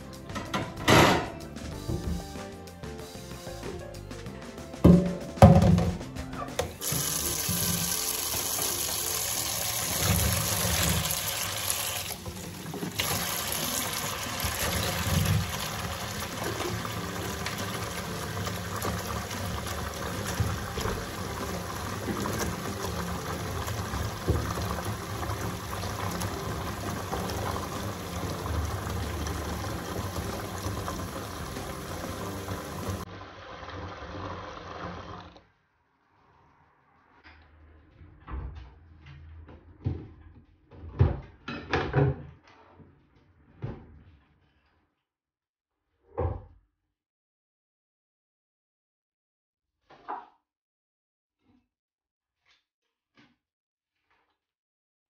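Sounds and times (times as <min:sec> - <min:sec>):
tap water pouring into a basin: 0:06.7 - 0:35.4.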